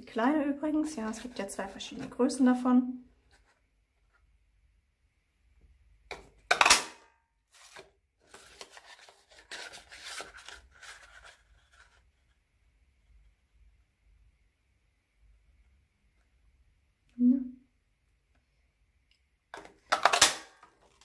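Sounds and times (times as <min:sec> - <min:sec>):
paper rustling and sliding: 0:07.5 - 0:12.4.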